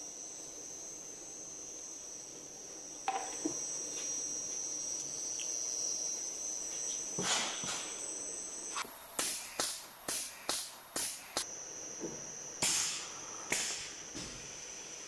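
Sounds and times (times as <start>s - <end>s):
faint machine hum: 0.0s - 15.0s
high-pitched machine whine: 0.0s - 15.0s.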